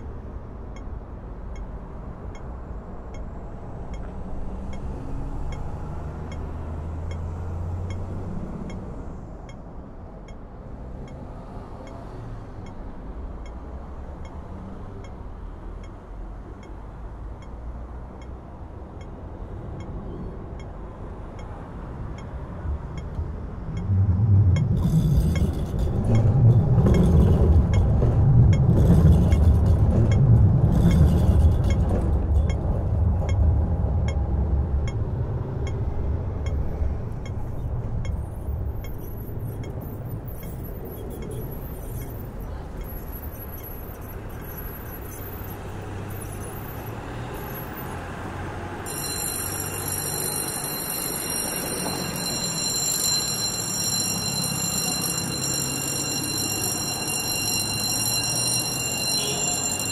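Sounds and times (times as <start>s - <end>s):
faint metallic ticks: 17.4s - 17.6s
harbour hum: 20.3s - 39.4s, 48.1s - 59.9s
low engine rumble: 22.6s - 38.9s
high steady tones: 23.0s - 33.5s, 48.9s - 59.9s.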